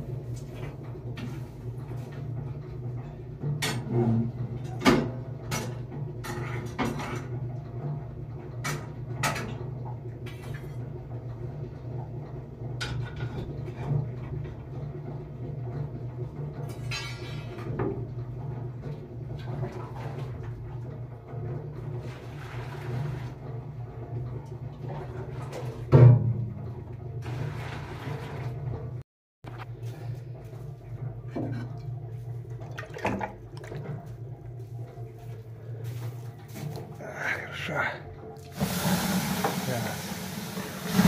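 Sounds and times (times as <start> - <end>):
steady low hum: 29.5 - 38.5.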